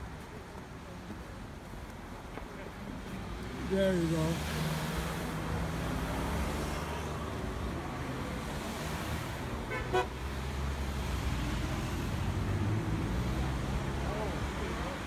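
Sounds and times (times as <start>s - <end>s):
cars passing on road: 0.0s - 15.0s
car horn toot: 9.7s - 10.1s.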